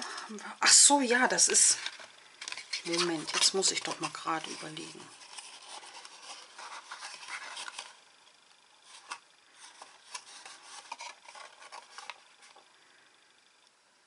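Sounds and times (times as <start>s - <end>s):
cardstock rustling and rubbing: 1.0s - 8.0s, 8.8s - 12.7s.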